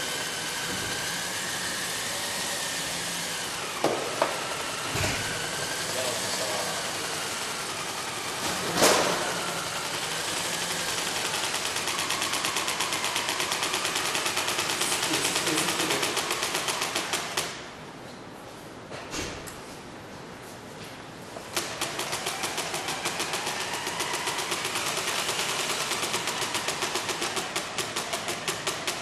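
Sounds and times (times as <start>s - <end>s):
motor hum with whine: 0.0s - 29.0s
loud knock: 3.8s - 5.3s
fast even rattle: 4.4s - 17.6s, 21.5s - 29.0s.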